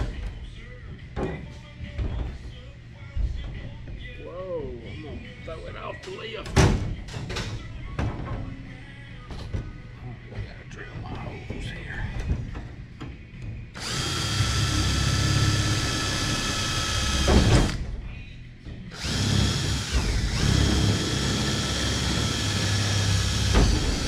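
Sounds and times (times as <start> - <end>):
cordless drill motor whine: 13.8 - 17.8, 19.0 - 24.0.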